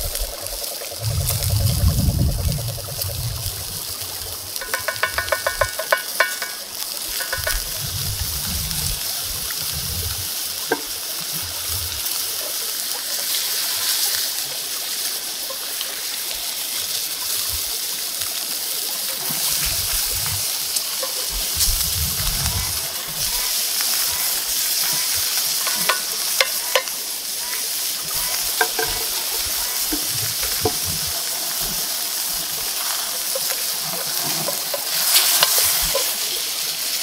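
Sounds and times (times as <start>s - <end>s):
steak sizzling in butter: 0.0s - 37.0s
rattling clicks: 4.6s - 6.6s.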